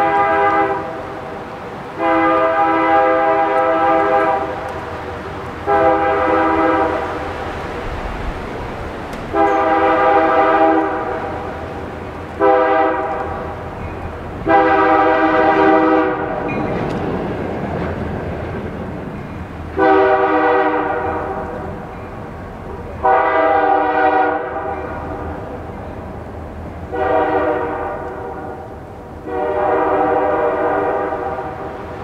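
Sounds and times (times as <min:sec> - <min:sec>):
locomotive air horn blasts: 0:00.0 - 0:01.3, 0:02.0 - 0:04.8, 0:05.6 - 0:07.4, 0:09.3 - 0:11.8, 0:12.4 - 0:13.6, 0:14.4 - 0:16.5, 0:19.8 - 0:21.8, 0:23.0 - 0:25.2, 0:26.9 - 0:31.8
train rumbling past: 0:00.0 - 0:32.0.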